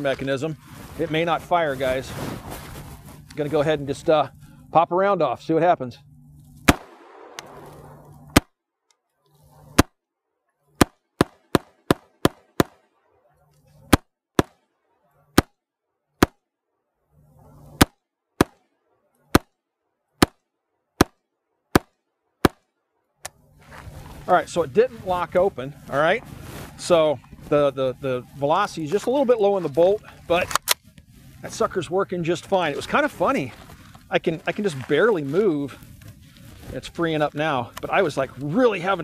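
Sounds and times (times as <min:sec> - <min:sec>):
rifle firing single shots: 0:06.6 - 0:08.5, 0:10.8 - 0:12.8.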